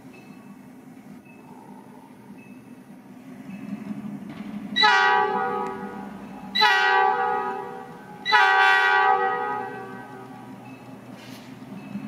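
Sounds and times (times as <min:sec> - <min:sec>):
diesel engine running low: 0:00.0 - 0:12.0
locomotive air horn blasts: 0:04.8 - 0:10.4.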